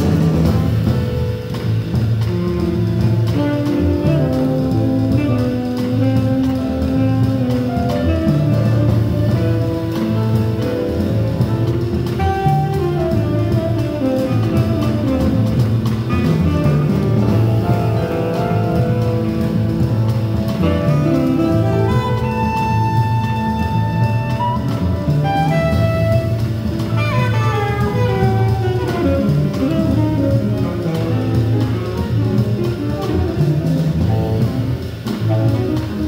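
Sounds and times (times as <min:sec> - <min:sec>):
drum kit with cymbals: 0:00.0 - 0:36.0
piano: 0:00.0 - 0:36.0
upright bass: 0:00.0 - 0:36.0
tenor saxophone melody: 0:02.3 - 0:19.8, 0:20.4 - 0:34.6.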